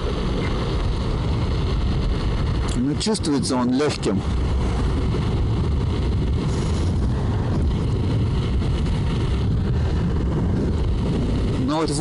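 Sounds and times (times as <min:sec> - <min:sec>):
wind buffeting the microphone: 0:00.0 - 0:12.0
tyre noise on asphalt: 0:04.2 - 0:11.8.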